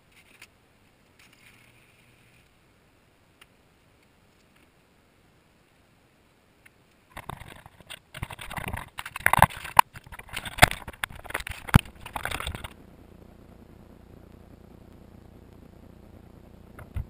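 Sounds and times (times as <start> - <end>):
faint steady hiss: 0.0 - 17.0
camera handling rustling: 7.1 - 12.8.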